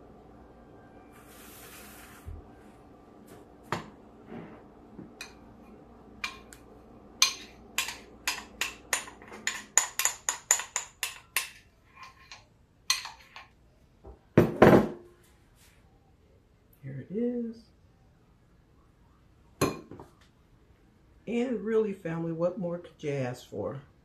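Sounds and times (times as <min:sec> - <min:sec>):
glass bowl set on counter: 0:07.2 - 0:13.5
spatula clinking glass bowl: 0:07.2 - 0:13.5.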